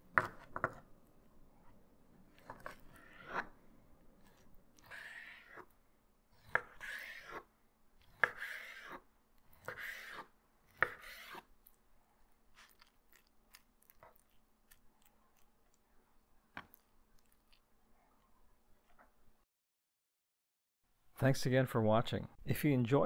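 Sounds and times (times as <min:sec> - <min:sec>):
knife slicing raw chicken: 0:06.3 - 0:11.8.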